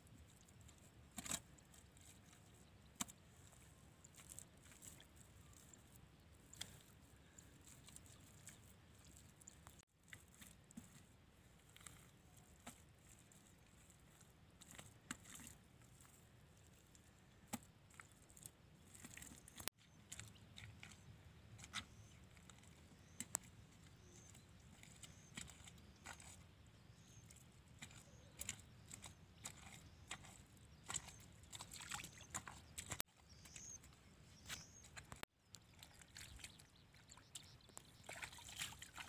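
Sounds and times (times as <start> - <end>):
wet mud squelching under hands: 16.8 - 39.0.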